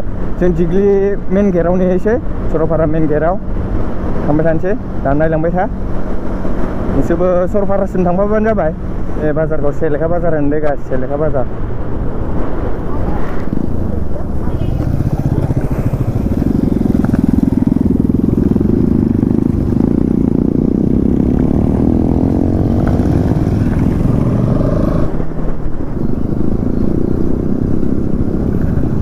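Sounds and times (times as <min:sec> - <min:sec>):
motorcycle engine running: 0:12.5 - 0:29.0.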